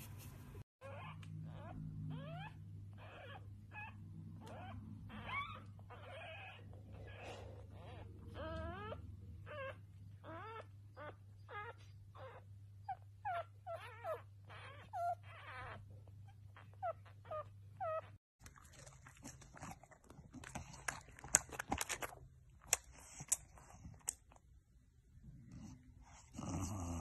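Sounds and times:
dog whimpering: 0.8 - 18.2.

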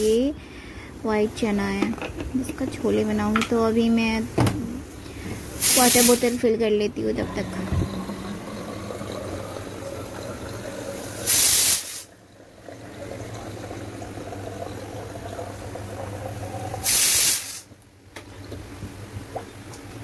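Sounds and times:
water purifier hum: 0.0 - 20.0
running water: 5.2 - 17.5
short loud hiss: 5.6 - 6.4, 11.2 - 12.1, 16.8 - 17.7.

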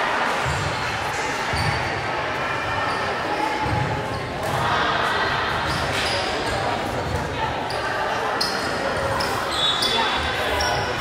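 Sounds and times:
crowd chatter: 0.0 - 11.0.

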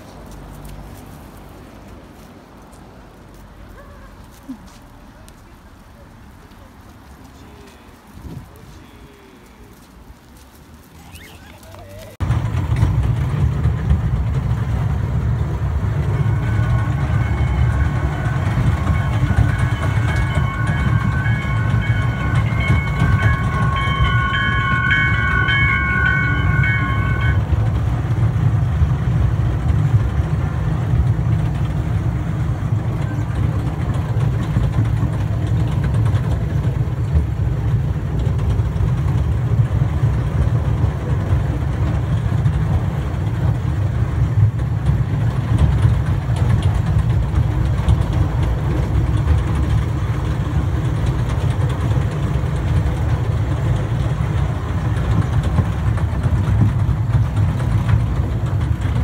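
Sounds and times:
kiddie train low rumble: 0.0 - 59.0
high ringing tones: 16.0 - 27.6.

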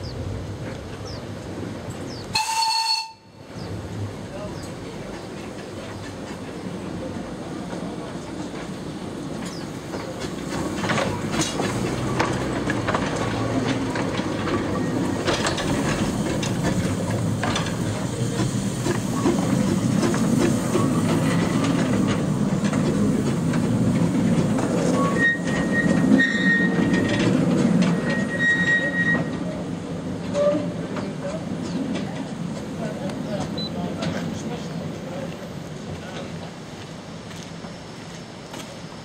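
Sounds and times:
steam train rumble: 0.0 - 39.0
wheels clicking over rail joints: 7.6 - 37.6
wheel squeal: 24.8 - 29.4.

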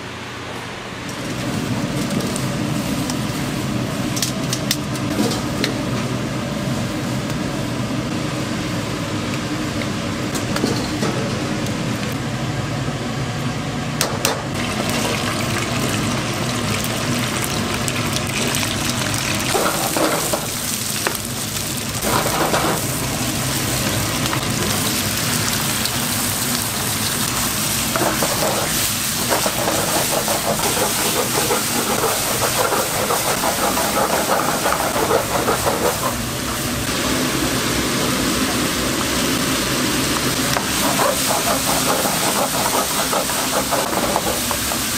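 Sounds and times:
kitchen machinery humming: 0.0 - 44.9
mushrooms sizzling: 14.7 - 44.9.

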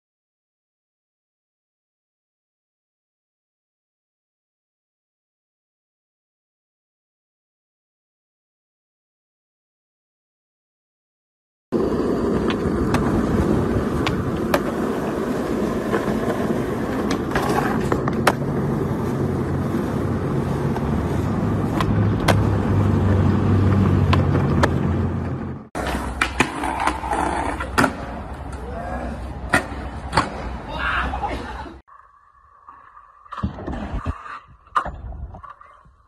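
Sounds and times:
skateboard wheels rolling on asphalt: 11.7 - 36.0
skateboard clacks: 11.8 - 28.7.

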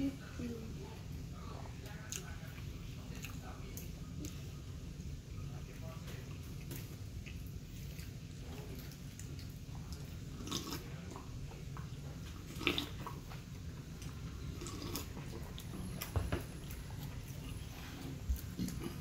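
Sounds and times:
steady low hum: 0.0 - 19.0
chewing: 1.6 - 4.8, 5.5 - 19.0
gulping from a paper cup: 10.4 - 11.3, 12.4 - 13.2.

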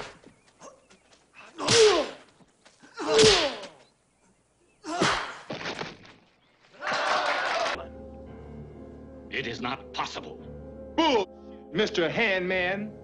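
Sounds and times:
punch sound effect crack: 3.1 - 3.7.

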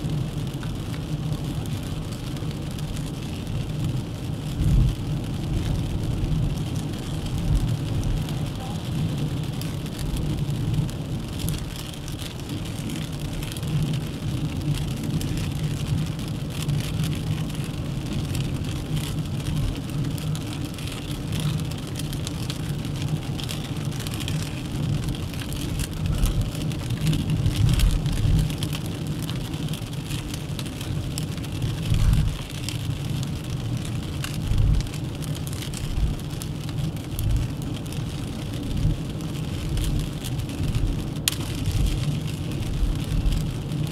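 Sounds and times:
car engine and tyres rumbling: 0.0 - 43.9
light ticks: 41.2 - 41.6.

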